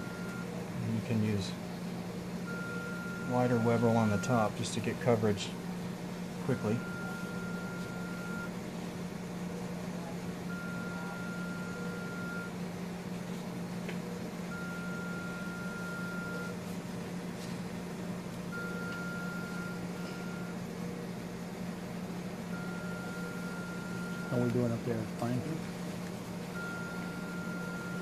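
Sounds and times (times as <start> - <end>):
medical alarm beeping: 0.0 - 0.6, 2.5 - 4.5, 6.4 - 8.5, 10.5 - 12.6, 14.5 - 16.6, 18.5 - 20.6, 22.5 - 24.8, 26.6 - 28.0
low hum of room equipment: 0.0 - 28.0.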